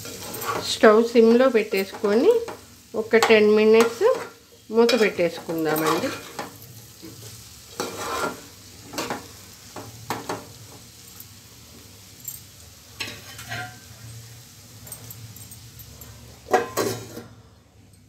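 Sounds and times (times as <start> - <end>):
faint sizzle: 0.0 - 18.0
spoon scraping steel pot: 3.8 - 6.4, 7.8 - 8.4, 13.0 - 13.8.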